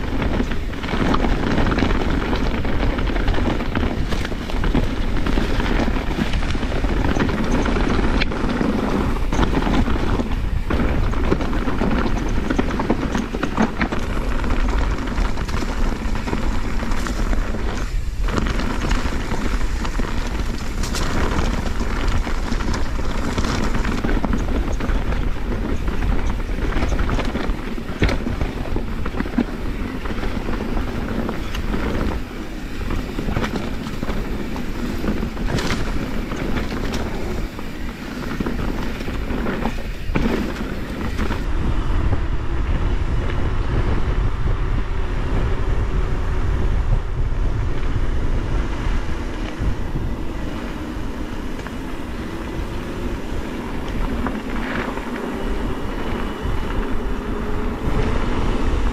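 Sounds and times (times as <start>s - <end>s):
bike clattering over rocks: 0.0s - 41.5s
bike rolling on dirt trail: 0.0s - 58.9s
wind on microphone: 0.0s - 58.9s.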